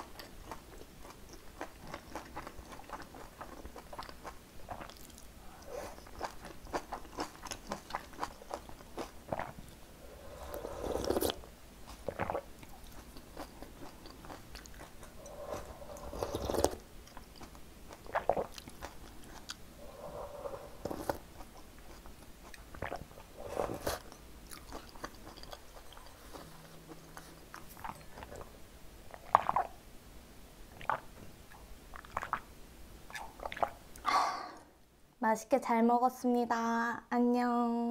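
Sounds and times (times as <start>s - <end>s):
crisp chewing crunches: 0.0s - 9.6s
slurping soup from spoon: 9.3s - 11.5s, 15.1s - 16.8s, 19.8s - 21.4s, 22.8s - 24.1s.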